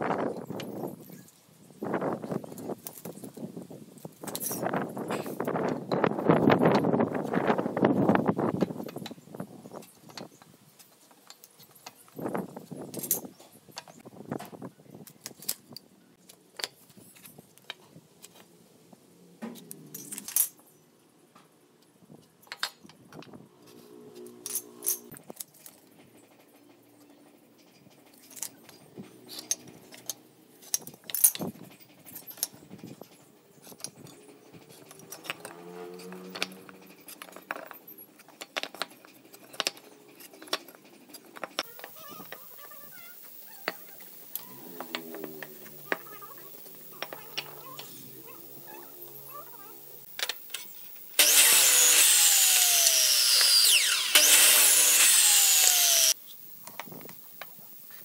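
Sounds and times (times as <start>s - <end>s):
tools and boards clicking and knocking: 22.4s - 23.4s, 28.1s - 42.0s.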